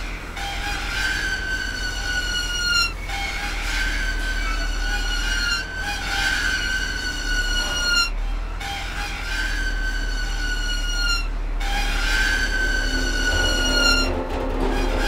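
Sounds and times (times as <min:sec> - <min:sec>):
low steady hum: 0:00.0 - 0:15.0
metallic ringing brake drum tones: 0:12.2 - 0:15.0.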